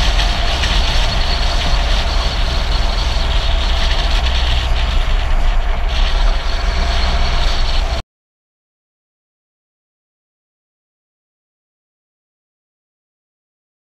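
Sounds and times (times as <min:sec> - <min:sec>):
tyre road noise: 0:00.0 - 0:08.0
wind buffeting microphone: 0:00.0 - 0:08.0.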